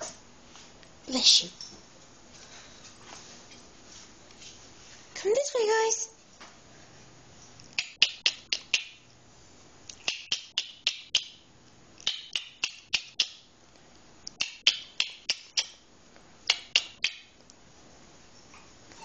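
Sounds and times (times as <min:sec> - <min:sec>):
person clicking tongue: 0:07.6 - 0:08.9, 0:09.9 - 0:11.3, 0:14.3 - 0:15.8, 0:16.5 - 0:17.2.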